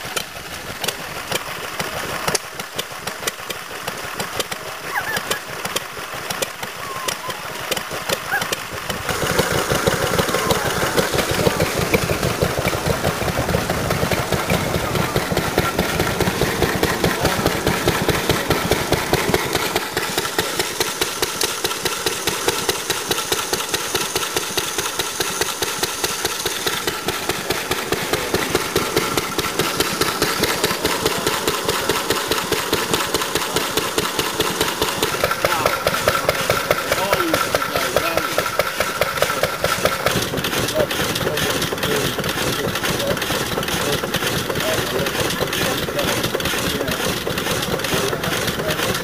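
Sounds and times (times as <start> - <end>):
stationary engines running: 0.0 - 49.0.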